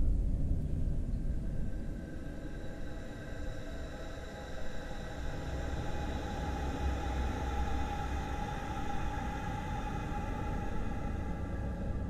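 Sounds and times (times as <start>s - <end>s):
steady low rumble: 0.0s - 2.4s.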